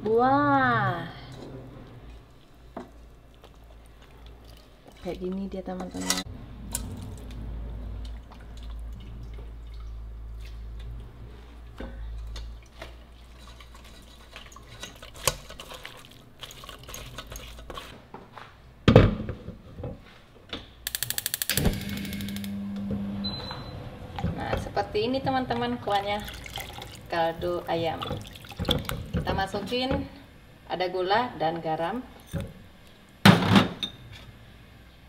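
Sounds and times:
water and liquid sounds: 25.6s - 29.3s.

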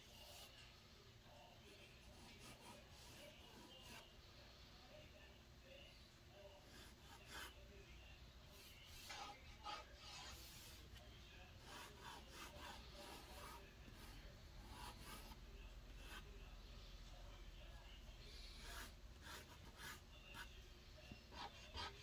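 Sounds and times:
pencil scratching on paper: 0.0s - 0.6s, 2.1s - 4.1s, 6.7s - 7.6s, 8.5s - 11.0s, 11.6s - 15.4s, 16.0s - 16.3s, 18.2s - 20.6s, 21.3s - 22.0s.

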